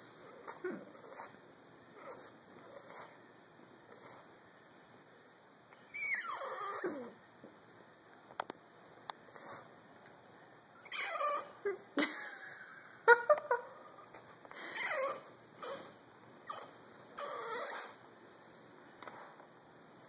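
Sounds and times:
dog whining: 0:00.3 - 0:01.4, 0:02.0 - 0:03.2, 0:05.8 - 0:07.2, 0:10.8 - 0:11.9, 0:13.9 - 0:18.0.

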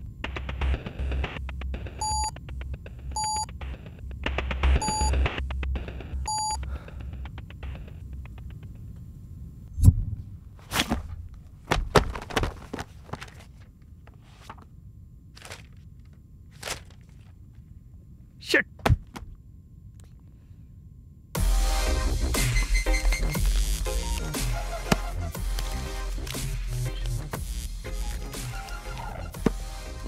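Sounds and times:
short electronic beeps: 0:02.0 - 0:02.4, 0:03.2 - 0:03.5, 0:04.8 - 0:05.2, 0:06.3 - 0:06.6
books knocking and rustling: 0:10.6 - 0:13.7, 0:29.4 - 0:29.7
pulsing synth music: 0:21.4 - 0:30.0.

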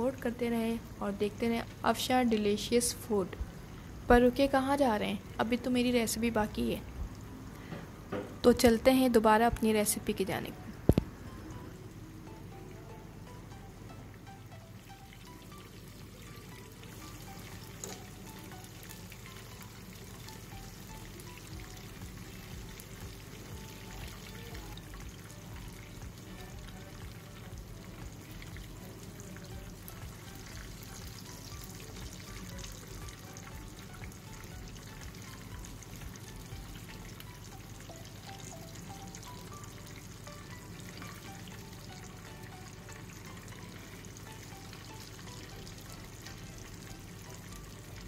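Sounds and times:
fish sizzling in oil: 0:14.7 - 0:48.0.

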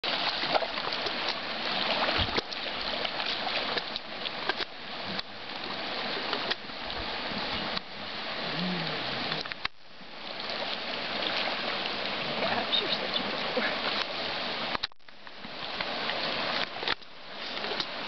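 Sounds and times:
mule splashing through water: 0:00.0 - 0:09.6.

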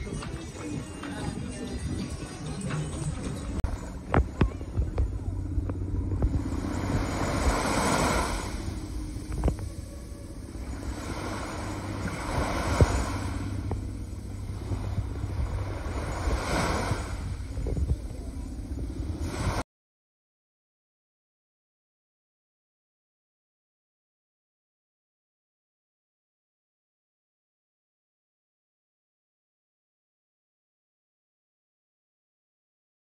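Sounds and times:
wind rumbling on microphone: 0:00.0 - 0:19.6
waves washing onto beach: 0:04.0 - 0:19.6.

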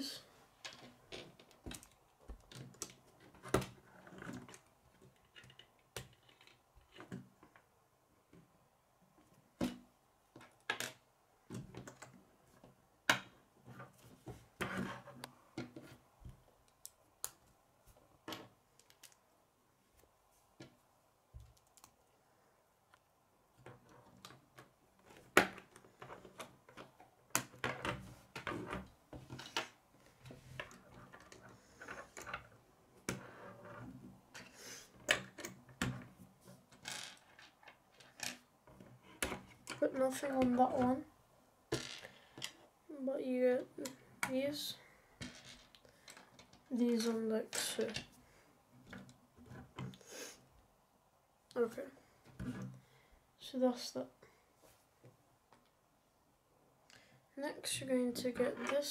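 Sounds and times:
plastic pieces clicking together: 0:18.8 - 0:19.2, 0:21.4 - 0:22.0.

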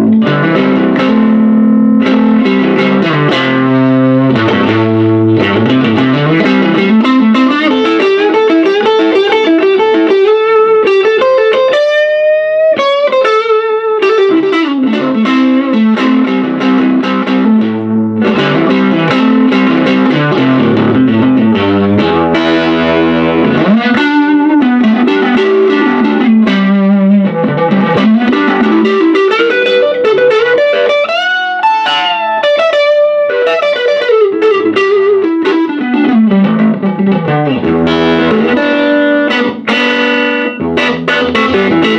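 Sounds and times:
electric guitar playing: 0:00.0 - 0:41.9.

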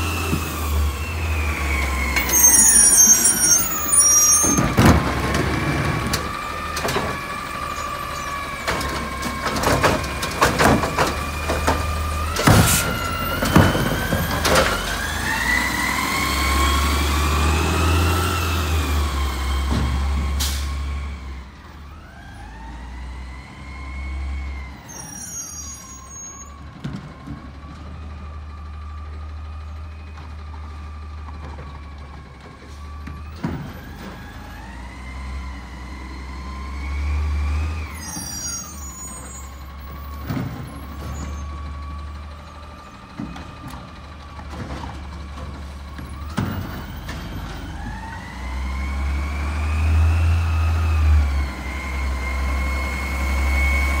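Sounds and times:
diesel engine revving: 0:00.0 - 0:25.7, 0:26.7 - 0:54.0
distant garbage truck engine: 0:00.0 - 0:54.0
garbage truck clanks: 0:02.0 - 0:15.9, 0:38.0 - 0:48.2.

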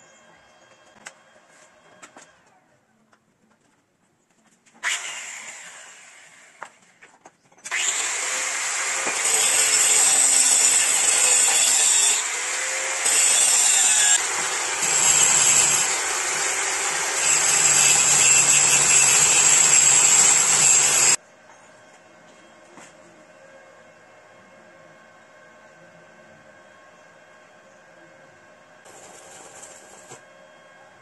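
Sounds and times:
angle grinder cutting metal: 0:07.7 - 0:21.2.

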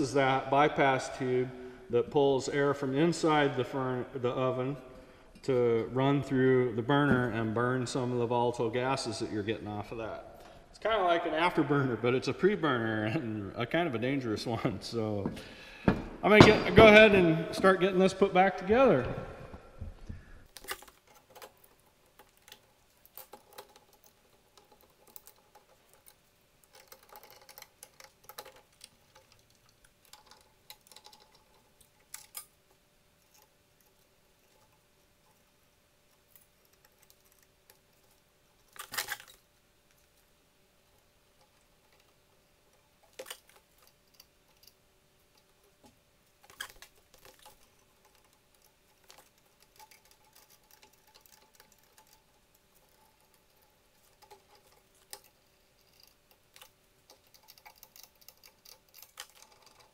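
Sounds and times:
faint steady hum: 0:00.0 - 0:59.9
metal parts clicking: 0:20.5 - 0:40.2, 0:40.9 - 0:59.9.

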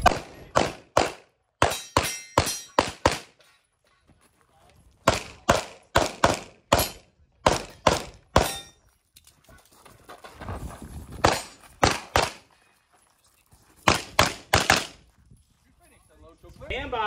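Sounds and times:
pistol shots: 0:00.0 - 0:03.4, 0:05.0 - 0:08.7, 0:11.2 - 0:12.4, 0:13.9 - 0:15.0.

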